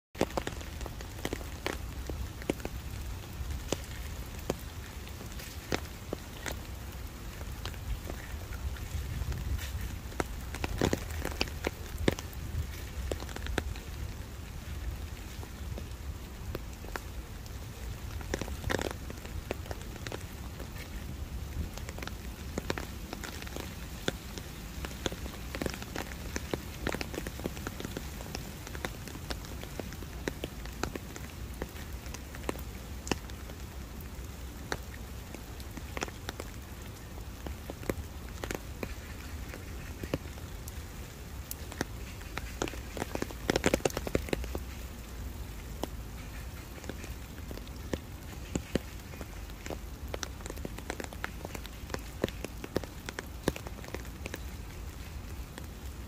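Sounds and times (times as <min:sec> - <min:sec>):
rain pattering on umbrella: 0:00.2 - 0:56.0.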